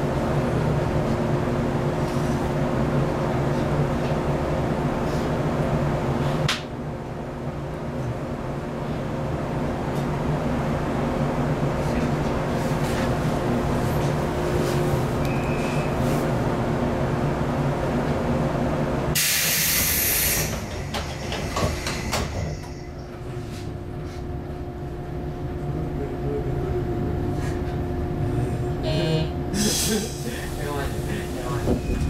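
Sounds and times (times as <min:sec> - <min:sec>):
train car equipment hum: 0:00.0 - 0:32.0
compressed air hiss: 0:19.2 - 0:20.7.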